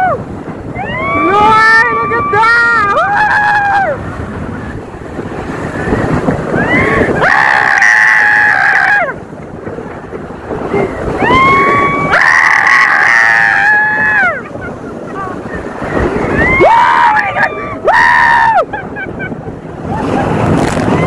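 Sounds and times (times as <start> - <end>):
people screaming: 0.0 - 4.0, 6.5 - 9.2, 10.8 - 18.8
wind on microphone: 0.0 - 21.0.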